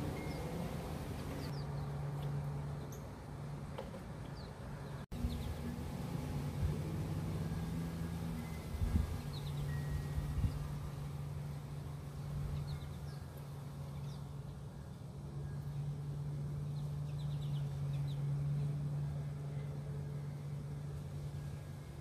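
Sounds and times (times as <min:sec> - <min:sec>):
small birds chirping: 0:00.0 - 0:03.1, 0:04.2 - 0:05.8, 0:08.4 - 0:20.4
low mechanical hum: 0:00.0 - 0:22.0.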